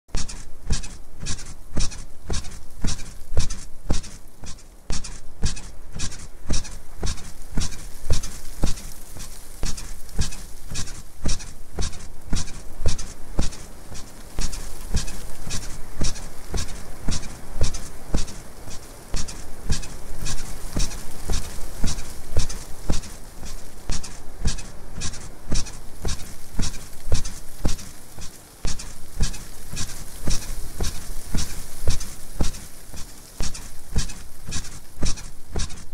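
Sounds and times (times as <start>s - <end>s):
bed springs squeaking: 0.1s - 35.9s.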